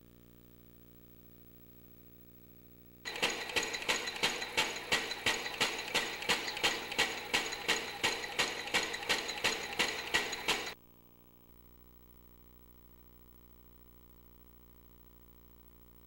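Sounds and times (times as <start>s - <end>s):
mechanical whine: 3.1s - 10.8s
sharp regular knock: 3.1s - 10.8s.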